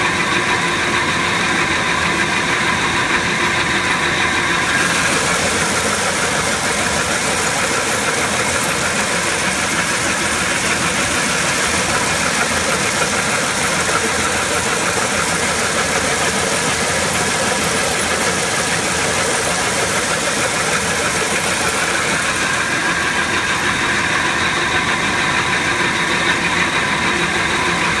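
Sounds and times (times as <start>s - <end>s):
crusher crushing gravel: 4.6s - 23.0s.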